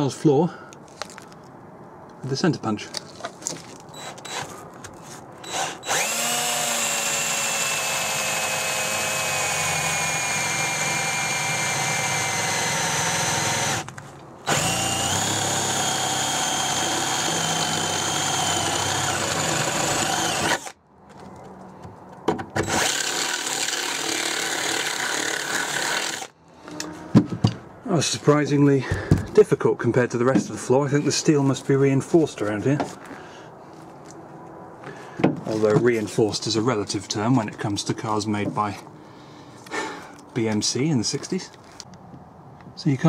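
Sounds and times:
power drill boring through steel: 5.4s - 13.8s, 14.5s - 20.8s, 22.6s - 26.3s.

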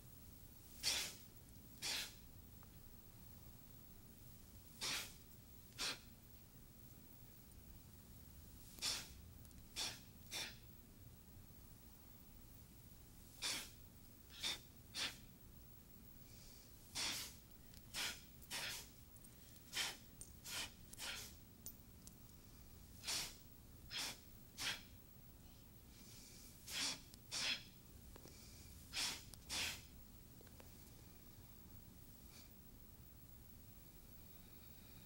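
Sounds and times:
sharp forceful breaths: 0.8s - 1.2s, 1.8s - 2.2s, 4.8s - 5.2s, 5.8s - 6.1s, 8.7s - 9.2s, 9.8s - 10.7s, 13.4s - 15.3s, 16.2s - 18.9s, 19.7s - 21.4s, 23.0s - 24.9s, 25.9s - 29.9s.

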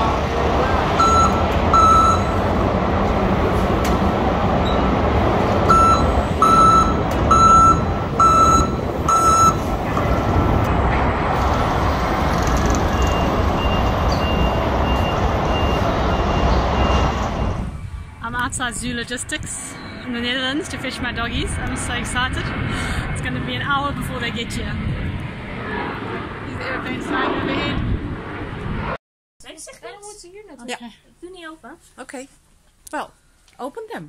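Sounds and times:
machinery noise: 0.0s - 27.6s
faint high beep: 1.0s - 2.4s, 5.7s - 9.6s
forklift warning beeps: 1.0s - 2.4s, 4.6s - 5.0s, 5.7s - 9.6s, 12.9s - 17.7s.

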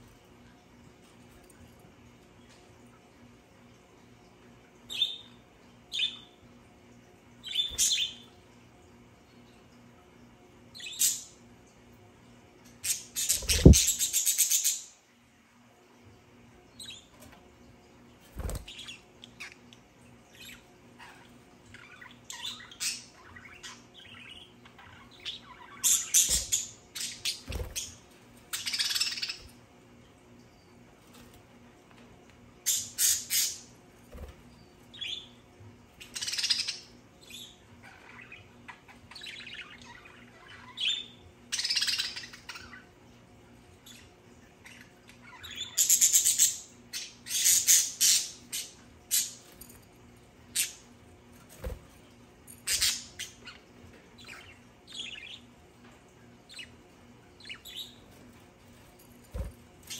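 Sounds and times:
budgerigars chirping and squawking: 7.5s - 8.2s, 12.8s - 14.9s, 20.4s - 29.5s, 36.0s - 42.8s, 44.6s - 49.4s, 52.6s - 55.5s.

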